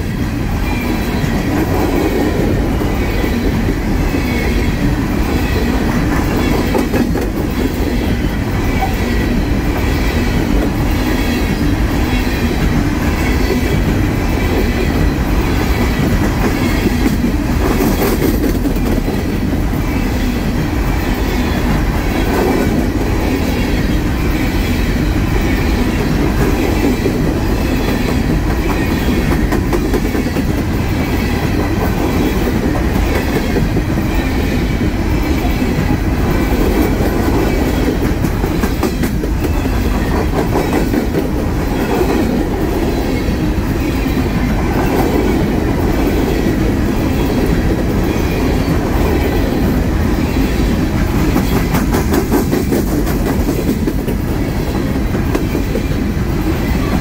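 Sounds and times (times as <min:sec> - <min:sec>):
steel wheels rumbling on rail: 0:00.0 - 0:57.0
wheelsets clickety-clack: 0:15.8 - 0:19.4, 0:51.2 - 0:54.4.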